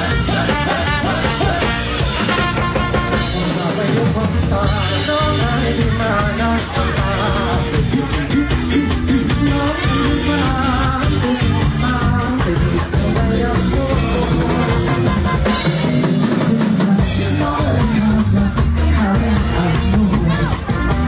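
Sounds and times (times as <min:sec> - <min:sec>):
loud amplified band music: 0:00.0 - 0:21.0
man singing into microphone: 0:00.0 - 0:21.0.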